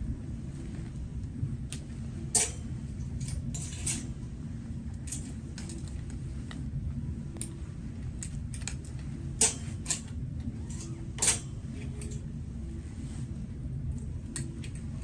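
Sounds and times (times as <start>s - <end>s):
low steady hum: 0.0s - 15.0s
hangers clicking on metal rail: 2.3s - 4.2s, 8.2s - 12.3s, 14.3s - 14.9s.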